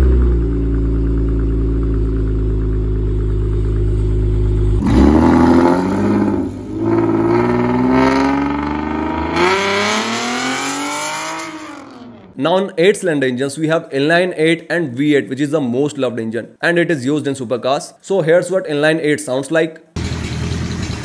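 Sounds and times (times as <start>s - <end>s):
engine idling and revving: 0.0s - 12.4s.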